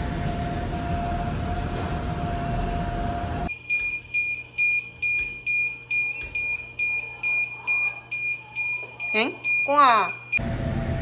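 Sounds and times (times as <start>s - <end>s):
dryer blowing noise: 0.0s - 11.0s
high-pitched warning alarm beeping: 3.5s - 10.4s.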